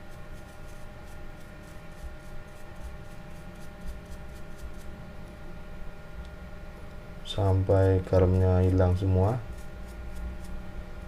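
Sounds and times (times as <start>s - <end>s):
brush scrubbing: 0.0s - 4.9s, 7.4s - 10.6s.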